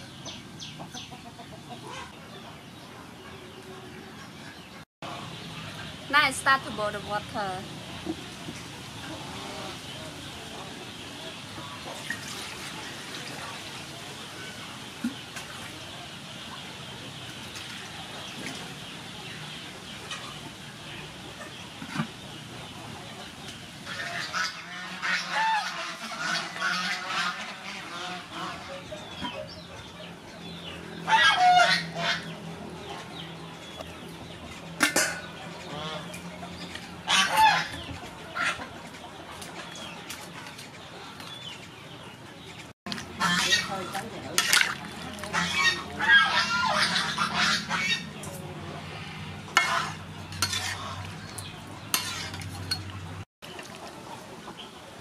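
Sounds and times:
fowl calling harshly: 23.9 - 28.8, 31.0 - 32.3, 43.2 - 44.0, 45.3 - 48.2, 49.0 - 51.1
metal utensils scraping a wok: 34.6 - 35.4, 42.9 - 47.1, 48.0 - 53.2.

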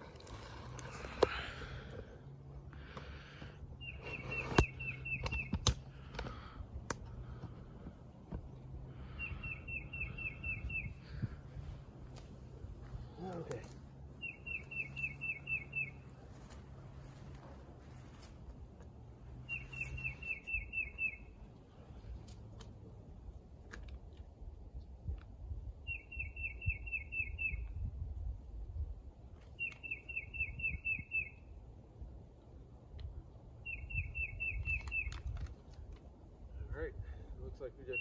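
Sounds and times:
songbird singing: 0.0 - 38.0
clicks of straps and carabiners: 34.6 - 36.1.

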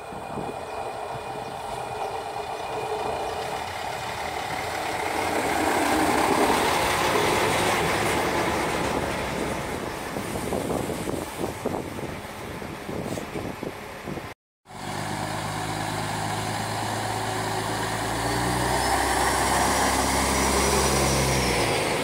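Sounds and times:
wheels clicking on track: 0.0 - 10.6
diesel railbus passing: 0.0 - 22.0.

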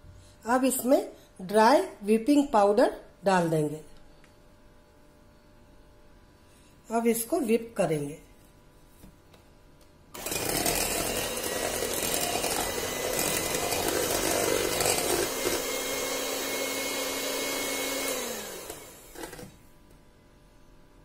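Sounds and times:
electric hand mixer whisking: 10.2 - 19.6.

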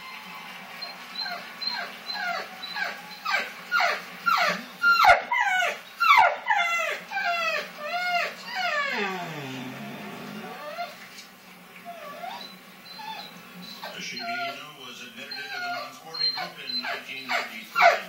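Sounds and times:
dog whining: 1.2 - 11.2, 11.8 - 18.0.

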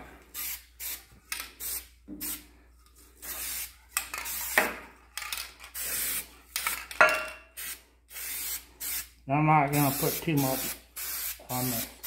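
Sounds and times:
aerosol spray can hissing: 0.3 - 2.5, 3.2 - 4.6, 5.7 - 6.3, 7.6 - 9.1, 9.8 - 12.0.

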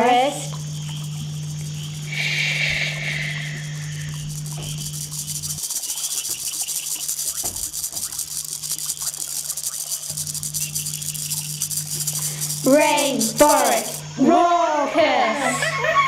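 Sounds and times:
low steady hum: 0.0 - 16.0
fast rustling and scratching: 3.1 - 14.0.

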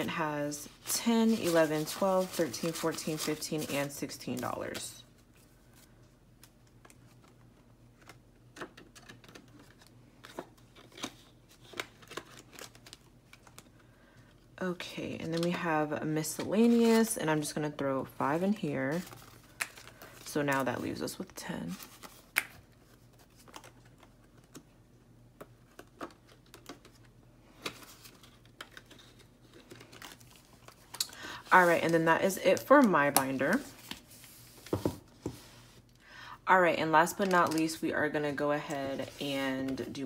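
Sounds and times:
paper bills rustling and crackling: 0.6 - 5.0.

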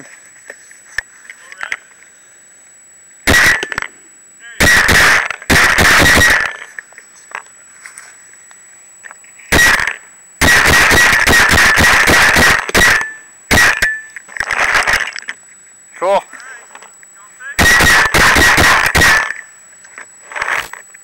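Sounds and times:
paintball marker firing bursts: 3.3 - 3.9, 4.6 - 6.7, 9.5 - 13.9, 17.6 - 19.5.

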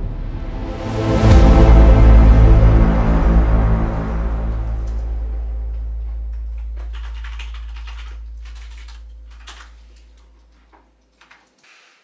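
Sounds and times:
low droning music note: 0.0 - 10.5
computer keyboard typing: 6.6 - 9.8.

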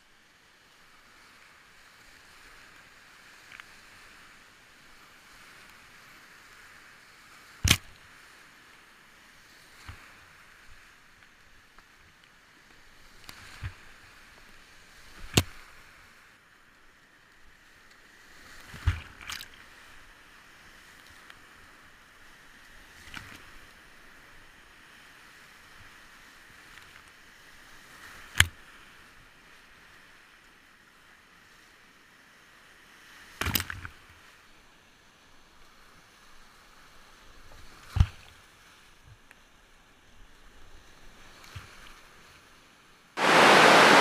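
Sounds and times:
whitewater rapids rushing: 43.2 - 44.0.

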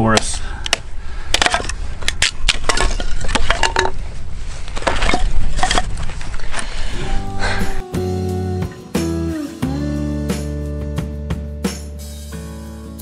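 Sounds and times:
wood pieces knocking together: 0.7 - 4.0.

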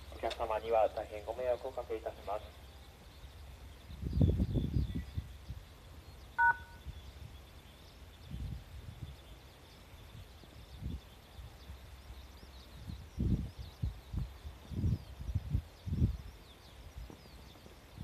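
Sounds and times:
wind buffeting microphone: 3.0 - 18.0
short two-tone electronic beep: 6.4 - 6.8.

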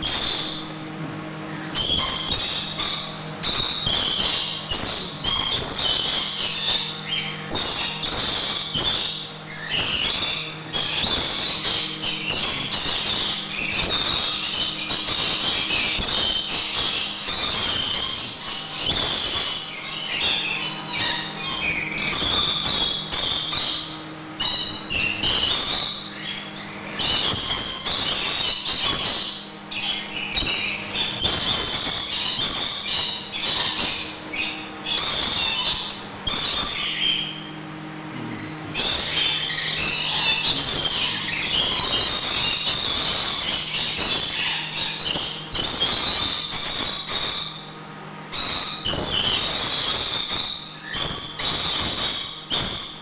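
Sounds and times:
lorikeets chattering and screeching: 0.0 - 53.0
steady low hum: 0.0 - 53.0.

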